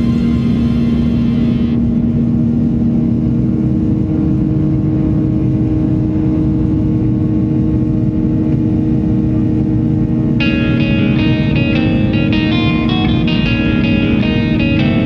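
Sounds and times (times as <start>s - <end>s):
jet engines roaring: 0.0s - 6.0s
low runway rumble: 0.0s - 15.0s
steady hum: 0.0s - 15.0s.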